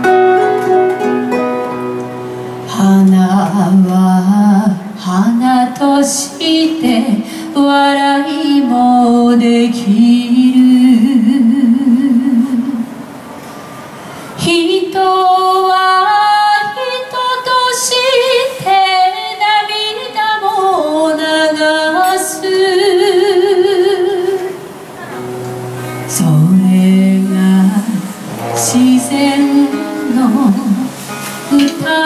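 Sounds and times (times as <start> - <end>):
classical guitars playing: 0.0 - 3.9, 24.0 - 32.0
person singing wordless melody: 25.9 - 32.0.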